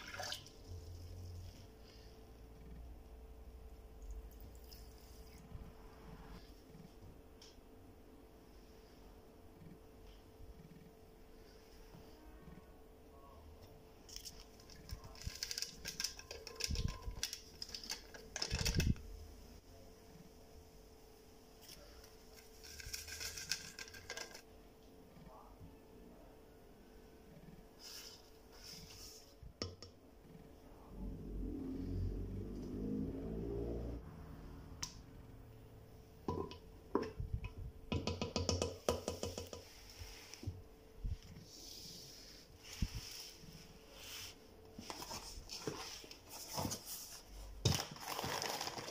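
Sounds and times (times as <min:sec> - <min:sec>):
paper sachet crinkling: 0:14.1 - 0:19.0, 0:21.7 - 0:24.4, 0:47.7 - 0:48.9
powder shaken into glass jar: 0:22.6 - 0:24.4
spoon tapping plastic cup and glass jug: 0:36.3 - 0:39.6.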